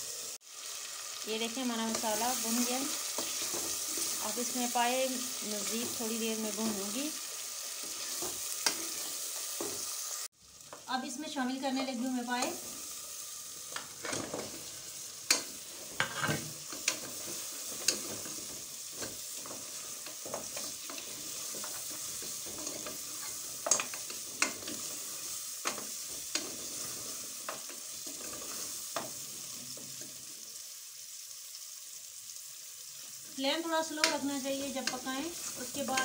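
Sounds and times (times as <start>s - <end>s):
meat sizzling in a pot: 0.0s - 36.0s
metal spoon scraping a pot: 16.0s - 17.0s.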